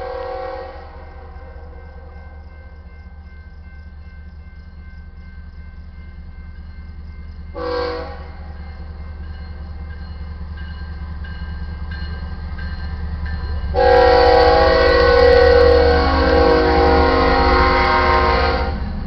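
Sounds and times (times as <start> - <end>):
train air horn blasts: 0.0 - 2.1, 7.6 - 8.6, 13.7 - 19.0
crossing warning bell ringing: 0.0 - 19.0
train rumble: 0.0 - 19.0.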